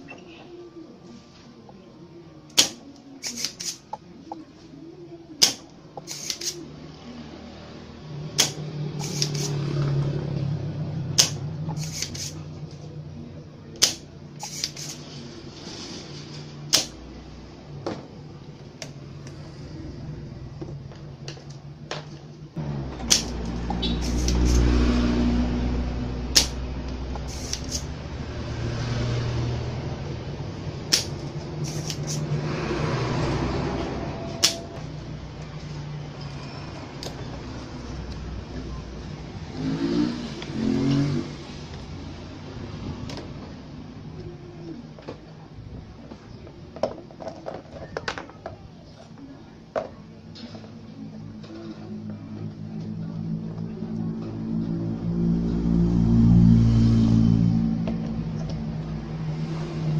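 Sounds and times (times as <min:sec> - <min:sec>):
desoldering pump snapping: 0:05.4 - 0:06.6, 0:08.4 - 0:09.6, 0:11.2 - 0:12.4, 0:13.8 - 0:15.0, 0:16.7 - 0:17.0, 0:23.0 - 0:24.7, 0:26.3 - 0:27.9, 0:30.9 - 0:32.2, 0:34.4 - 0:34.6.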